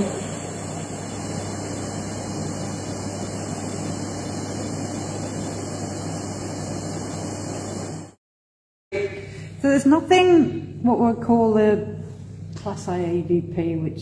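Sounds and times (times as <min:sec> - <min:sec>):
steady hiss: 0:00.0 - 0:08.2.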